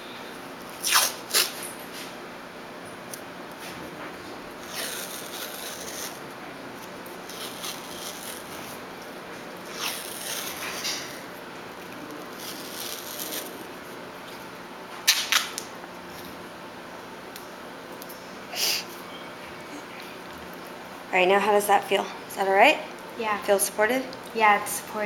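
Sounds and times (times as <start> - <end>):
tape ripping off roll: 0.8 - 1.7, 9.7 - 11.2, 12.3 - 13.6.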